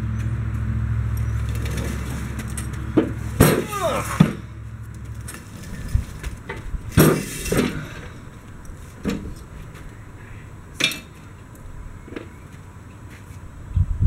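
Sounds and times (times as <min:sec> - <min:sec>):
metal clanks and knocks: 0:01.2 - 0:08.2, 0:09.0 - 0:09.4.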